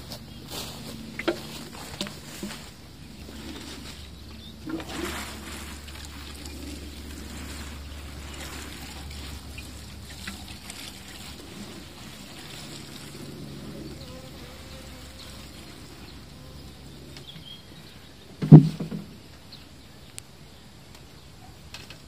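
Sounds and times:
watering can sprinkling water: 1.2s - 16.3s.

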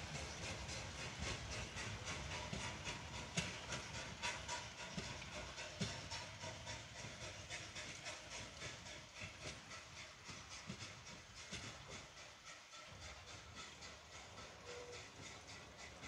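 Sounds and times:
steam train hissing beats: 0.0s - 16.0s.

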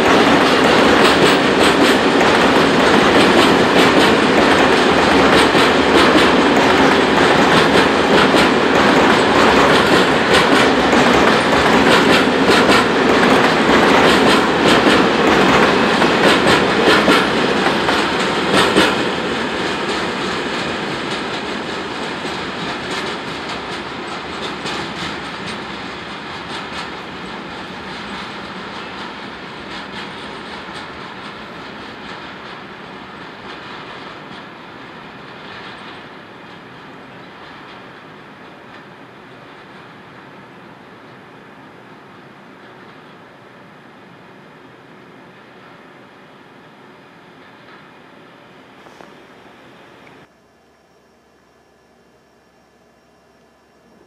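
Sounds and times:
wheels clicking over rails: 0.0s - 38.1s
freight train rolling past: 0.0s - 50.3s.

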